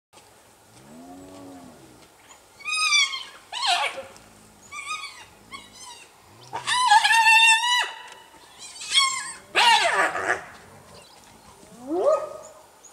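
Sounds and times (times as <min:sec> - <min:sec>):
low growl: 0:00.7 - 0:02.0, 0:09.3 - 0:12.1.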